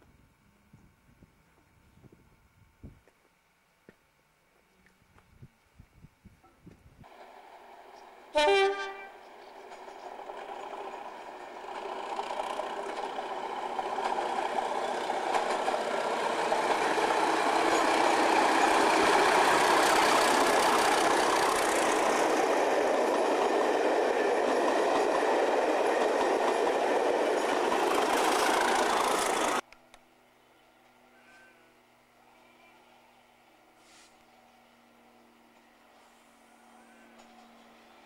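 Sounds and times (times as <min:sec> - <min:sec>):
diesel train passing: 0:07.0 - 0:29.6, 0:34.4 - 0:38.0.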